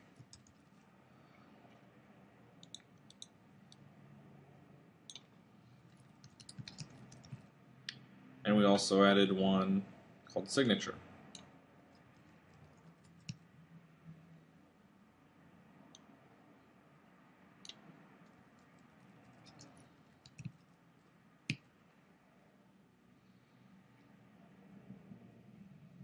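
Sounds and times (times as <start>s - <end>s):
computer keyboard keystrokes: 0.2s - 0.6s, 5.9s - 7.4s, 19.3s - 20.6s.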